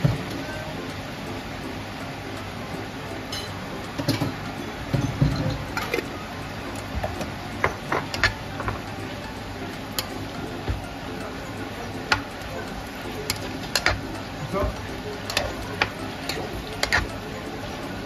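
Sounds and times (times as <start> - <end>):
spatula tapping a pan: 13.3 - 14.1, 15.2 - 17.2.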